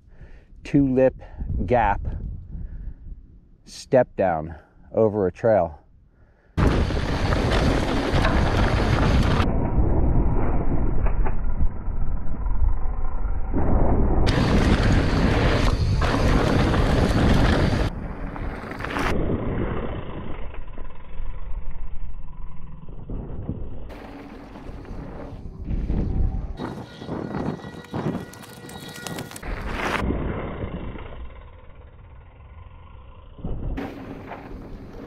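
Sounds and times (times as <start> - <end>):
wind buffeting microphone: 1.1 - 3.5, 23.0 - 30.9
bike tyres rattling over rocky dirt: 6.6 - 9.5, 14.3 - 21.7, 22.6 - 32.2, 33.5 - 35.0.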